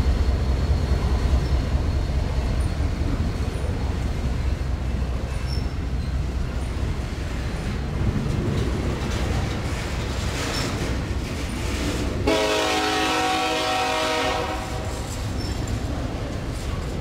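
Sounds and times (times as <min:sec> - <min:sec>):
freight train rumbling on rails: 0:00.0 - 0:17.0
locomotive air horn: 0:12.2 - 0:15.1.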